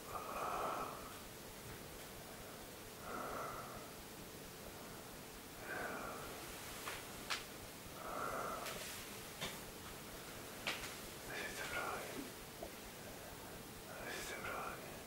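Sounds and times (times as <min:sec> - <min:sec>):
person breathing slowly: 0:00.0 - 0:01.2, 0:02.2 - 0:04.0, 0:04.7 - 0:07.0, 0:08.0 - 0:09.2.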